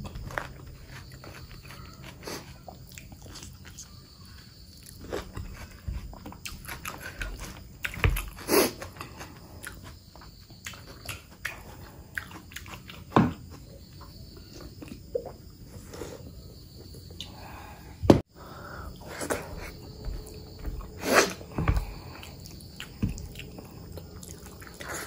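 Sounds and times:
wet chewing and mouth smacking: 0:00.0 - 0:04.0, 0:04.7 - 0:13.1, 0:19.3 - 0:25.0.

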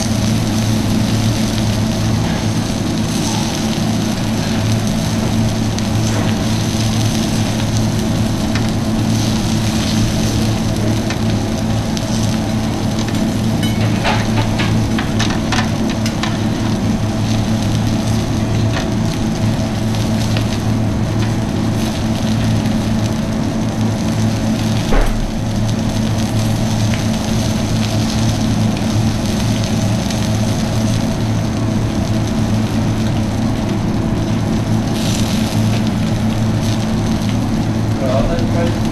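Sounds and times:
food sizzling on a griddle: 0:00.0 - 0:38.9
steady low hum: 0:00.0 - 0:38.9
loud knock: 0:24.9 - 0:25.4.

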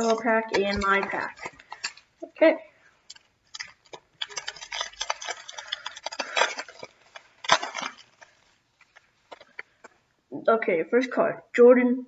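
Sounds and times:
foil wrapper crinkling: 0:00.0 - 0:02.3, 0:02.9 - 0:09.9.

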